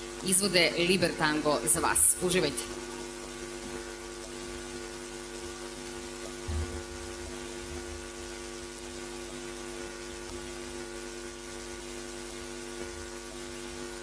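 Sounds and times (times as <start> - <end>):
mains hum and buzz: 0.0 - 14.0
low thump: 6.4 - 6.9.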